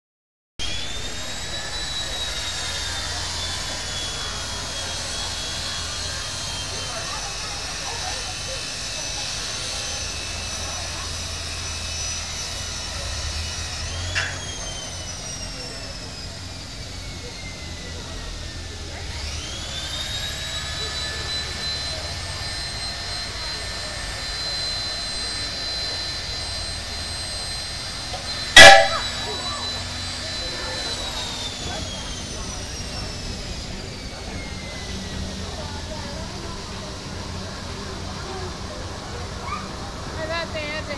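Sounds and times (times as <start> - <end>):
circular saw blade whining: 0.6 - 40.9.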